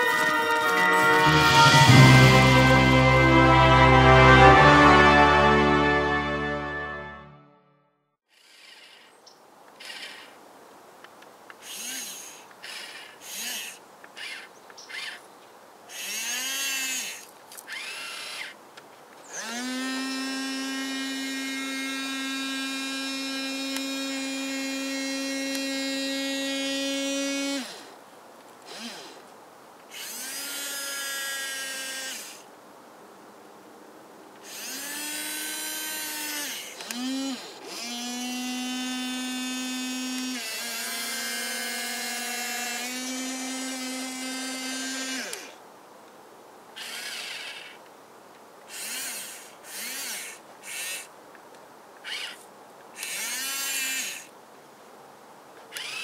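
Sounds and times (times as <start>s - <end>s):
toy electric motors whining: 0.0s - 1.9s, 8.3s - 9.2s, 9.8s - 10.4s, 11.6s - 15.2s, 15.9s - 18.6s, 19.3s - 27.9s, 28.7s - 29.2s, 29.9s - 32.5s, 34.4s - 45.6s, 46.8s - 47.8s, 48.7s - 51.1s, 52.0s - 52.4s, 53.0s - 54.3s, 55.7s - 56.0s.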